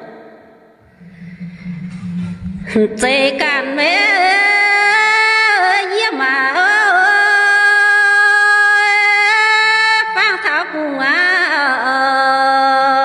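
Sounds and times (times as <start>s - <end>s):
woman singing unaccompanied: 2.7s - 13.0s.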